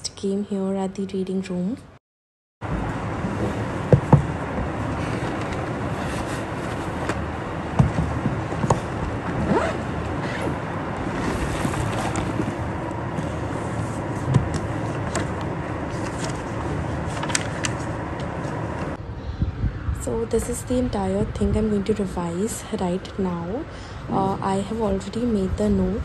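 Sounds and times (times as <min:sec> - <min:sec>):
air-conditioning rushing noise: 0:02.6 - 0:26.0
backpack knocks and rustles: 0:07.1 - 0:12.6
paper handling: 0:13.4 - 0:18.9.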